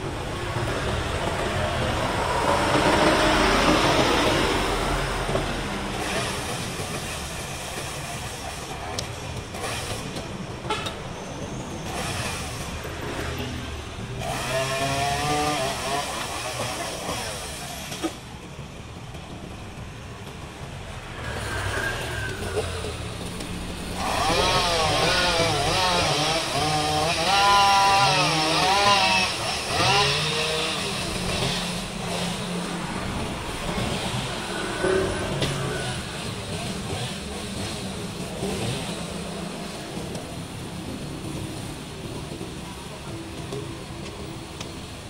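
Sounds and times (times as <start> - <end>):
street traffic hum: 0.0 - 45.0
chainsaw revving: 14.2 - 18.1, 23.9 - 32.7.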